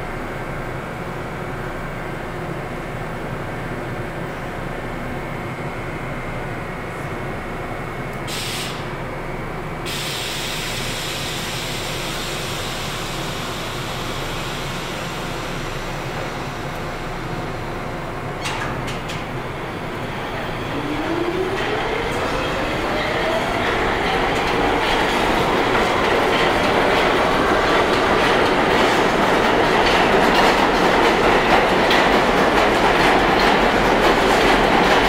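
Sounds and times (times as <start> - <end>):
subway train humming: 0.0 - 35.0.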